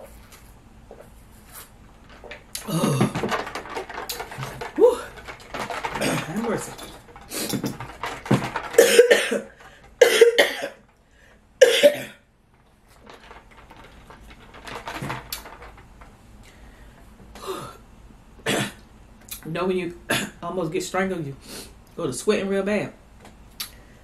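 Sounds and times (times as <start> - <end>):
woman coughing hard: 8.8 - 10.8, 11.6 - 12.2, 18.4 - 18.8, 20.1 - 20.4.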